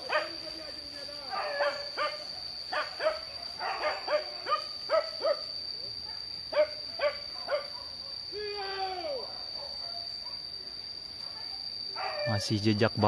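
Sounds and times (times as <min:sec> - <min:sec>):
high insect drone: 0:00.0 - 0:13.0
dogs yelping: 0:01.3 - 0:05.5, 0:06.1 - 0:08.1, 0:11.2 - 0:12.4
dog howling: 0:12.0 - 0:12.4.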